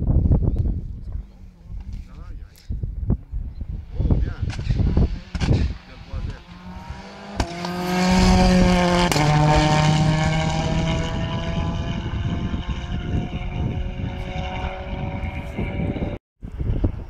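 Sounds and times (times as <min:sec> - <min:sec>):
rally car engine passing: 0:03.7 - 0:16.2.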